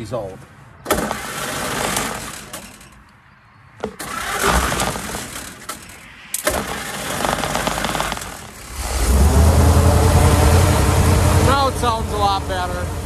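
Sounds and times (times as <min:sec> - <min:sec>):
truck engine cranking by starter: 0:00.9 - 0:03.0, 0:03.8 - 0:12.8.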